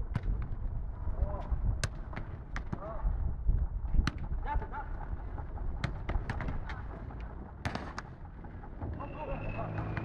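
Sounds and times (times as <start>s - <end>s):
ball kicks and bounces: 0.0s - 0.7s, 1.8s - 3.0s, 5.8s - 6.8s.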